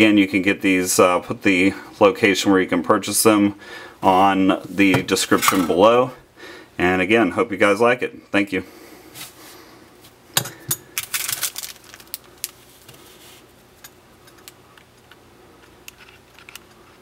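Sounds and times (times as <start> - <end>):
plastic bag crinkling: 10.9 - 13.3.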